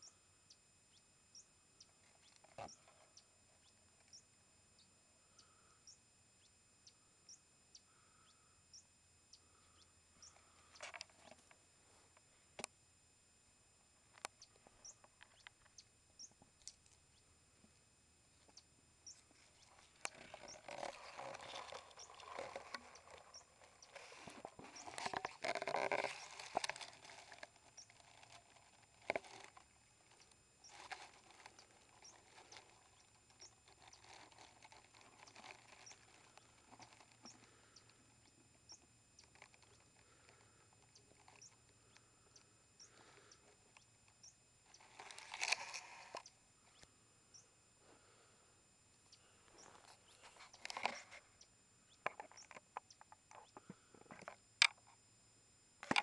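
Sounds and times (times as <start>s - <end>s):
dry grass rustling: 19.1s - 37.6s, 44.7s - 46.2s.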